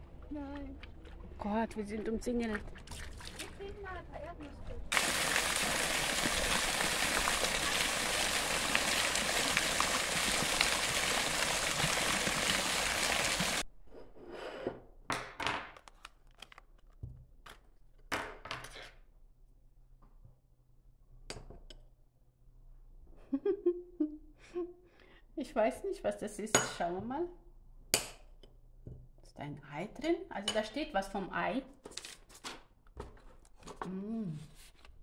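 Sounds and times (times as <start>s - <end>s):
fountain jets splashing: 4.9s - 13.6s.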